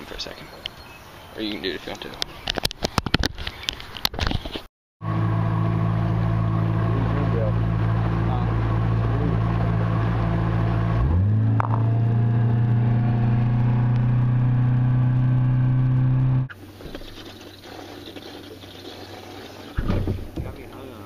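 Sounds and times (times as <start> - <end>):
outboard motor running: 5.0 - 21.0.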